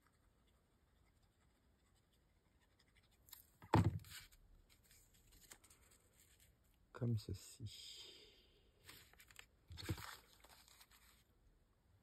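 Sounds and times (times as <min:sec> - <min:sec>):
paper rustling: 0:03.1 - 0:06.6, 0:08.8 - 0:11.3
paper handling: 0:08.8 - 0:11.3.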